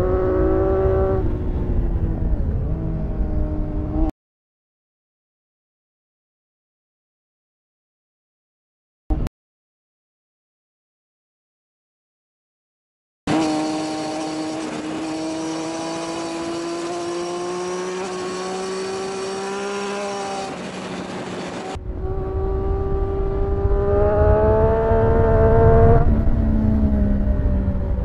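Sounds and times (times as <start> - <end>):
low wind rumble: 0.0 - 4.1, 18.5 - 28.0.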